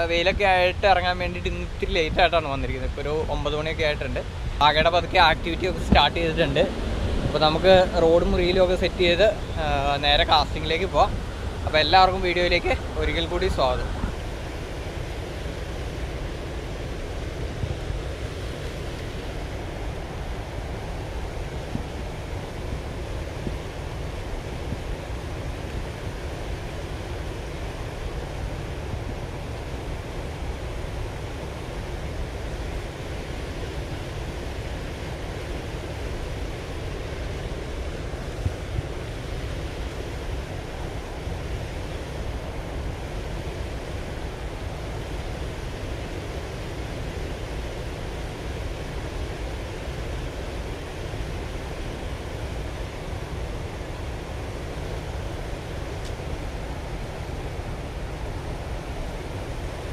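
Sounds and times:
river water pouring over weir: 0.0s - 59.9s
water churning in rapids: 0.0s - 59.9s.

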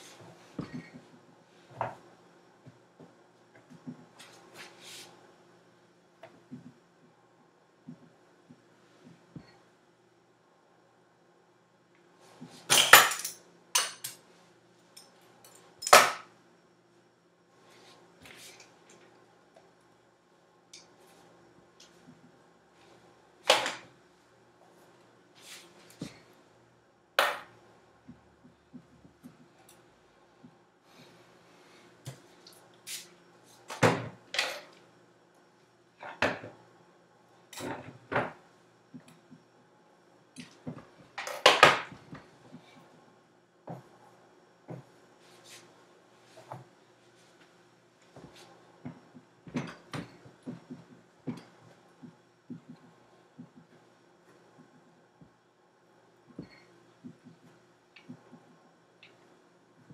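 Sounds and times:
hair brushing sweeps: 4.2s - 5.2s, 25.4s - 26.0s, 32.8s - 33.6s.

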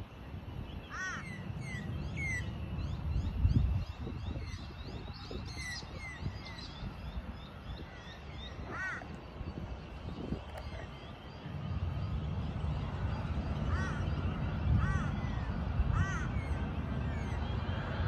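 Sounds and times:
wind rumble on microphone: 0.0s - 18.0s
birds chirping and whistling: 3.5s - 11.4s.

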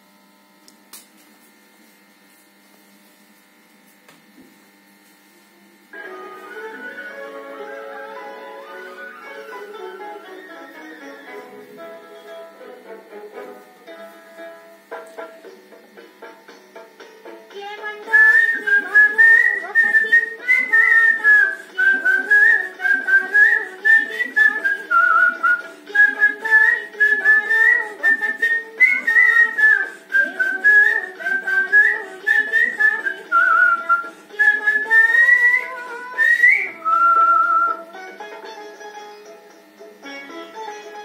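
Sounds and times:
instrumental music accompaniment: 6.0s - 41.0s
man whistling a melody: 18.1s - 37.8s.

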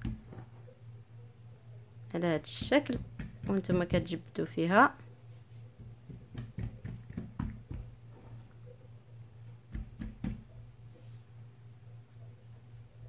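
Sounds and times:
hands patting dough: 0.0s - 0.6s, 2.4s - 4.2s, 5.2s - 8.3s, 9.6s - 11.1s
low steady hum: 0.0s - 13.0s.

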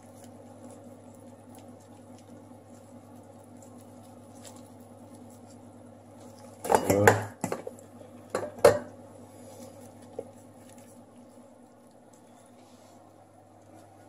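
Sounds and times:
steady low hum: 0.0s - 14.0s
kitchenware clattering: 6.6s - 7.7s, 8.3s - 8.9s.

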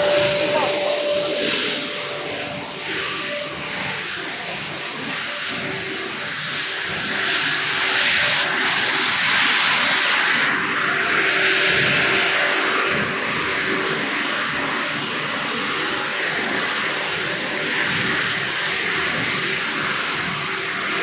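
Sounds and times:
faint steady hum: 0.0s - 7.1s
machine rushing noise: 0.0s - 13.9s.

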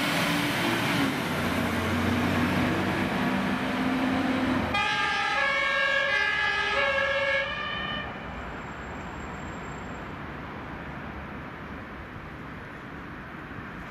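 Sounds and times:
road and traffic rumble: 0.0s - 13.9s
two-tone fire engine siren: 4.7s - 8.3s.

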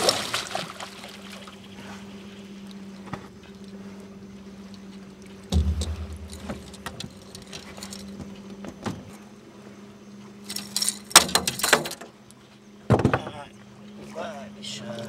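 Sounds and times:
steady low hum: 5.4s - 8.2s
fish thrashing and clattering: 5.6s - 8.2s
clicks and knocks in boat: 5.6s - 9.2s, 10.5s - 13.6s.

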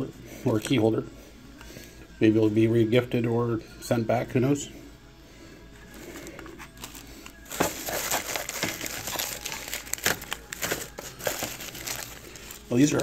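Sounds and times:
plastic bag and paper crinkling: 5.8s - 13.0s.

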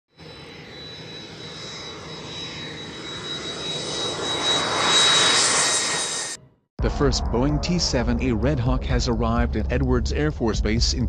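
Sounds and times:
jet engine rushing and whining: 0.1s - 6.6s.

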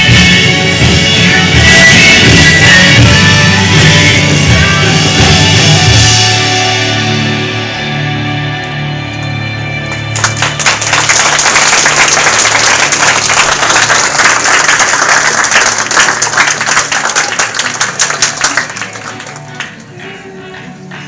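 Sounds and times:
audience applauding: 9.9s - 19.8s.

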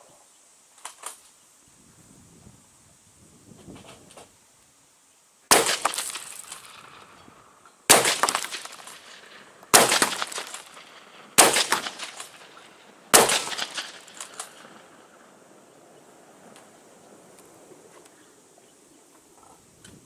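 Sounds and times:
shotgun shots with echo: 5.5s - 7.1s, 7.9s - 14.8s.

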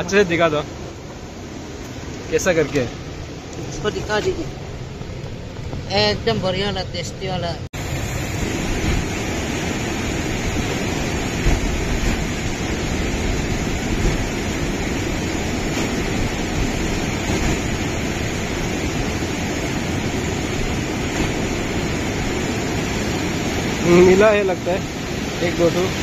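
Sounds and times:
river rapids rushing: 7.8s - 26.0s.

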